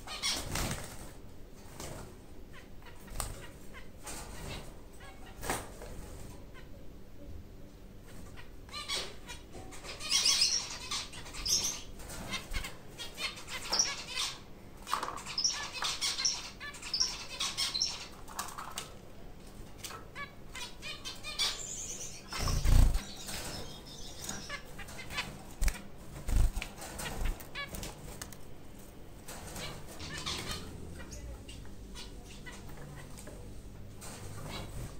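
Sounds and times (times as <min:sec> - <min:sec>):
rustles and clicks in cage: 0:03.2 - 0:06.4, 0:11.9 - 0:12.8, 0:18.2 - 0:20.2, 0:22.3 - 0:34.9
finches fluttering wings: 0:22.3 - 0:28.5.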